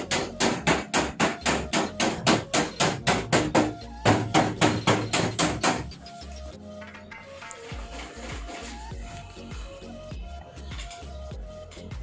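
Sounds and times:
hammer blows on sheet metal: 0.0s - 6.0s.

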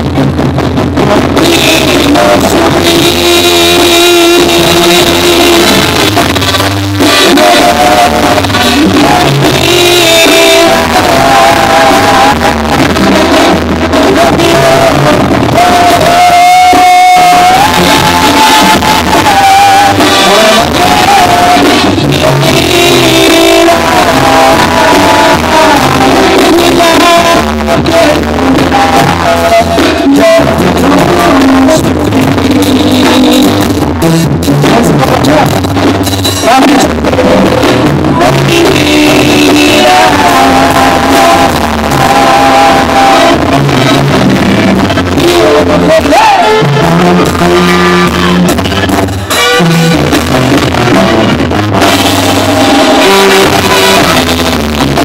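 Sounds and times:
brass band music: 0.0s - 55.0s
men singing: 1.1s - 35.6s, 36.4s - 48.5s, 52.5s - 55.0s.

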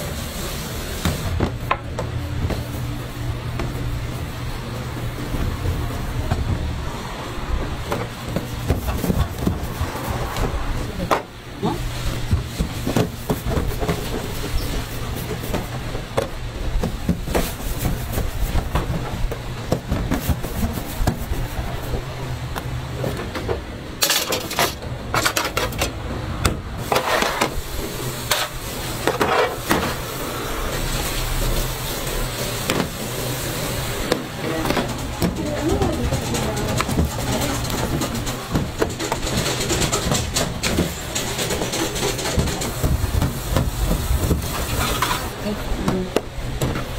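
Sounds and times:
steady low hum: 0.0s - 46.9s
knocks and clatter of metal trays: 7.8s - 9.8s, 23.0s - 27.6s, 34.1s - 46.9s.

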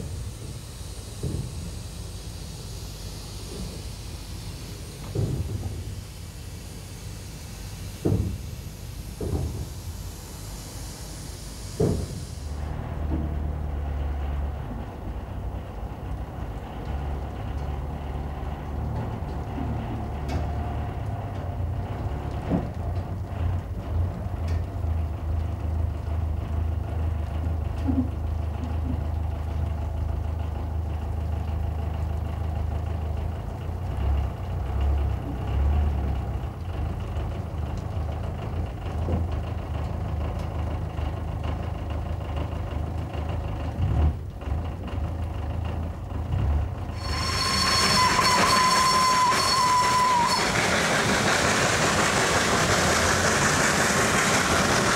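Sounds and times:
steam hissing: 0.0s - 12.8s, 47.0s - 54.9s
steam locomotive rumble: 0.0s - 54.9s
steady whistle tone: 47.0s - 51.3s.

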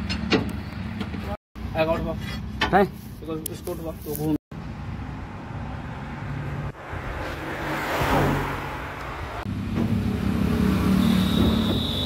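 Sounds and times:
motor vehicle passing: 4.8s - 11.9s
thin high whistle: 10.9s - 12.0s.

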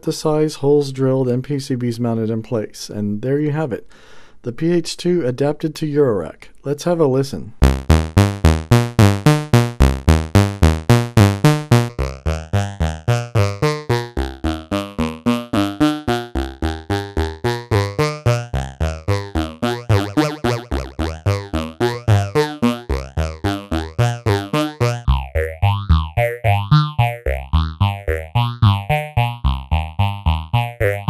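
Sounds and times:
phased synth note sequence: 7.6s - 31.0s.

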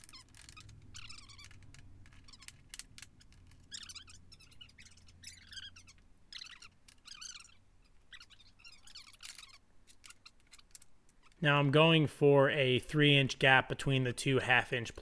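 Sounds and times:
steel parts clinking and scraping: 8.5s - 11.4s.

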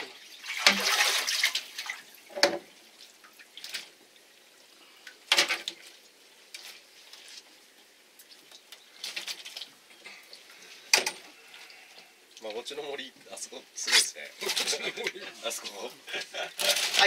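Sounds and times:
fish flapping and splashing: 8.2s - 10.4s, 16.6s - 17.0s.

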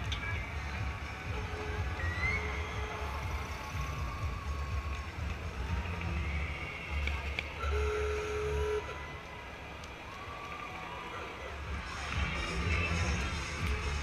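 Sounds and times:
distant crowd voices: 0.0s - 14.0s
old cars driving slowly past: 0.0s - 14.0s.

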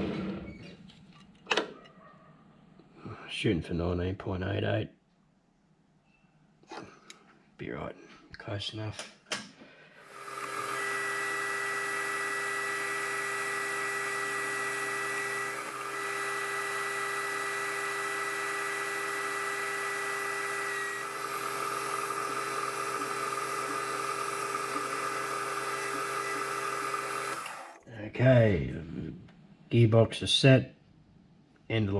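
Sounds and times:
metal lathe gear whine: 10.1s - 27.8s.

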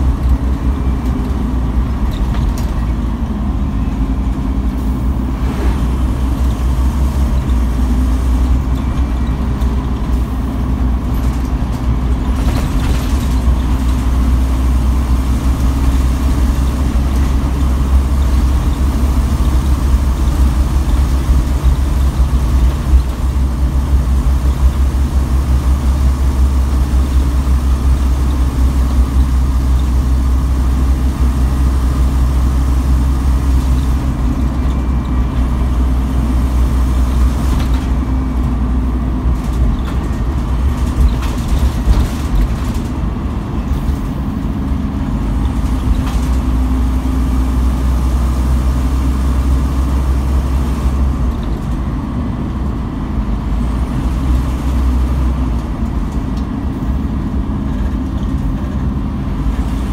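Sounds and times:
bus diesel engine drone: 0.0s - 59.9s
road and tyre noise: 0.0s - 59.9s
body rattles and knocks: 10.8s - 14.1s, 39.2s - 44.2s.

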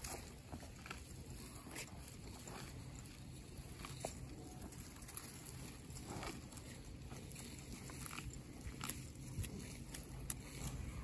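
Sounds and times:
cow tearing and chewing grass: 0.0s - 11.0s.

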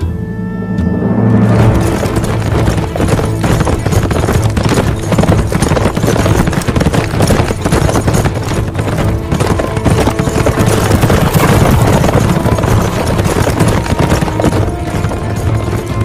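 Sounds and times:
dramatic soundtrack music: 0.0s - 5.5s, 9.0s - 16.0s
horse hooves galloping on dirt: 1.5s - 16.0s.

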